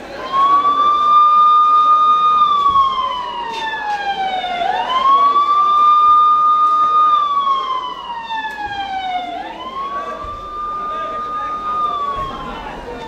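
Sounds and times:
siren wailing: 0:00.0 - 0:13.0.

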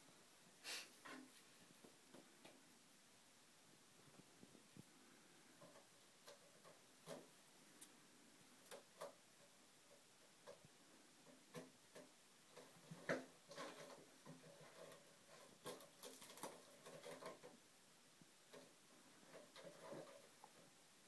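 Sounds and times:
cat claws scratching post: 0:08.7 - 0:17.6, 0:18.5 - 0:20.6.

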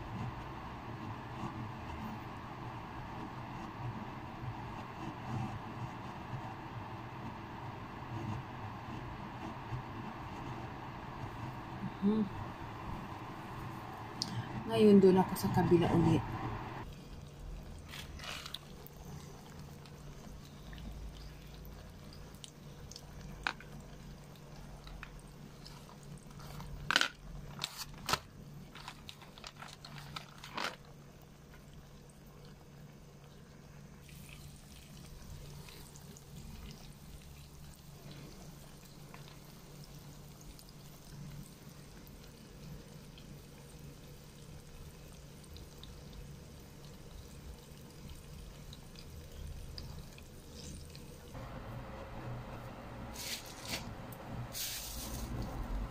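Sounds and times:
steady low hum: 0:00.0 - 0:17.8, 0:48.4 - 0:55.9.

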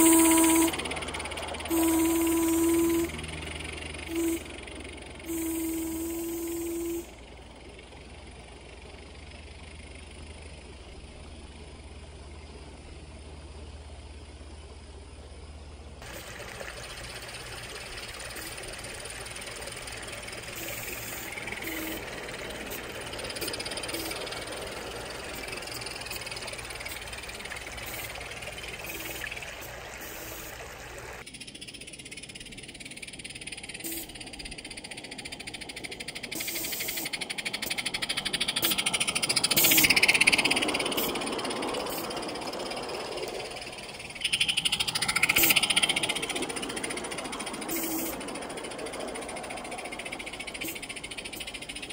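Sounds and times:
toy train wheels rattling on track: 0:00.0 - 0:10.6, 0:16.0 - 0:30.6, 0:31.2 - 0:51.9
water trickling over waterfall: 0:16.0 - 0:21.5, 0:22.1 - 0:31.2.

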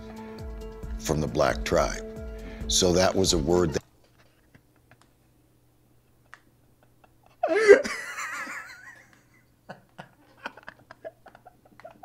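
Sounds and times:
man laughing hysterically: 0:06.2 - 0:12.0.

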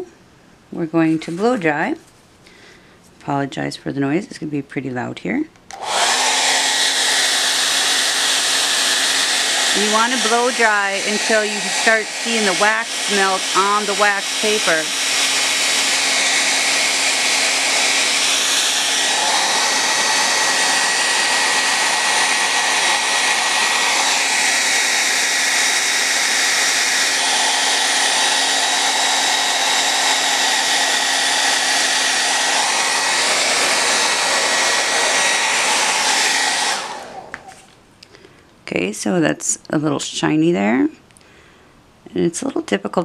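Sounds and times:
hair dryer blowing: 0:05.7 - 0:37.7.

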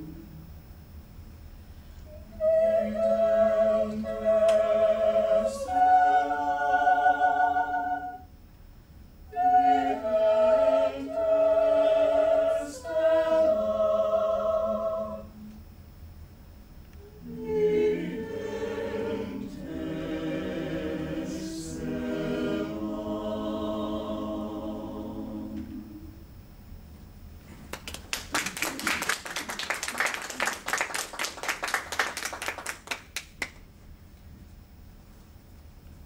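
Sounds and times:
mixed choir singing a cappella: 0:02.3 - 0:08.3, 0:09.3 - 0:15.6, 0:17.1 - 0:26.2
audience applauding: 0:27.7 - 0:33.6.

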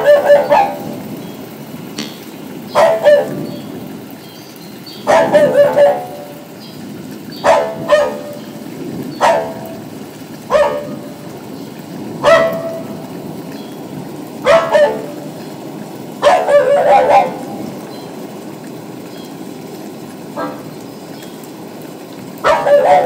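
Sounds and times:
small dog barking: 0:00.0 - 0:01.0, 0:02.7 - 0:03.4, 0:05.0 - 0:06.5, 0:07.4 - 0:08.4, 0:09.2 - 0:09.9, 0:10.5 - 0:11.2, 0:12.1 - 0:13.0, 0:14.4 - 0:15.3, 0:16.2 - 0:17.8, 0:20.3 - 0:20.8, 0:22.4 - 0:23.0.

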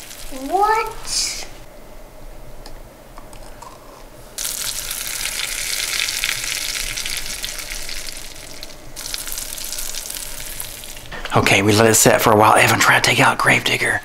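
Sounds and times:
baking soda and vinegar fizzing: 0:00.0 - 0:01.5, 0:04.4 - 0:11.1.

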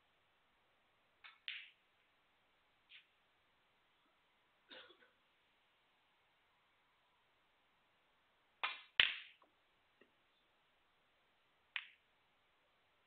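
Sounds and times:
snooker balls clicking: 0:01.2 - 0:01.8, 0:11.7 - 0:12.0.

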